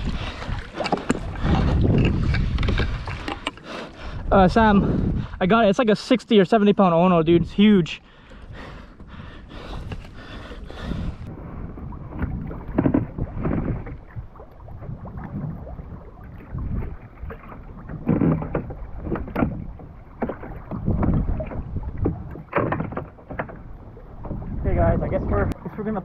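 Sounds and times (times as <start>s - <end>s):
wind gusts on microphone: 0.0s - 3.4s, 4.0s - 5.7s, 9.5s - 19.8s, 20.5s - 22.4s, 24.0s - 26.0s
water slapping against hull: 0.0s - 5.4s, 8.1s - 26.0s.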